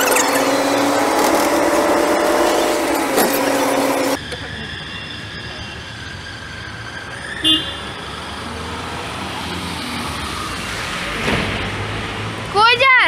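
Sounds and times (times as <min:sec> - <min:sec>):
traffic on wet street: 0:00.0 - 0:13.0
vehicle horn toot: 0:07.4 - 0:07.9.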